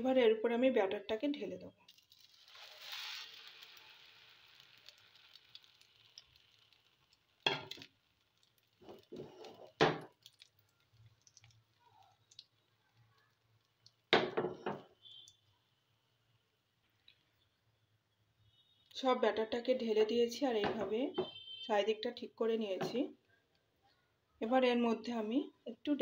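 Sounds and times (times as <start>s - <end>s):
batter sizzling in oil: 1.8s - 15.6s.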